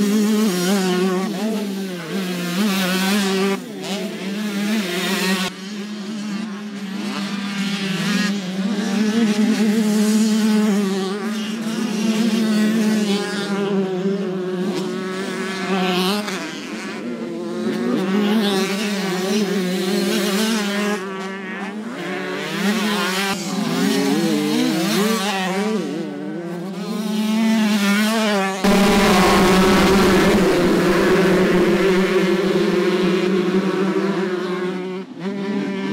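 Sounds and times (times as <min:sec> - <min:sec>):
motocross bikes revving: 0:28.7 - 0:35.9.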